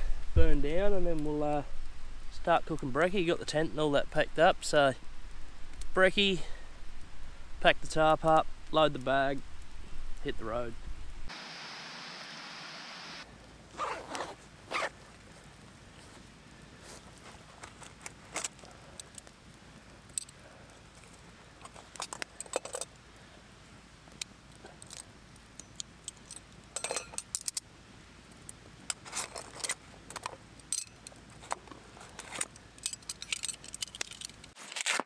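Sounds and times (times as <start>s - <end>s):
small metal pieces jangling: 32.8s - 34.6s.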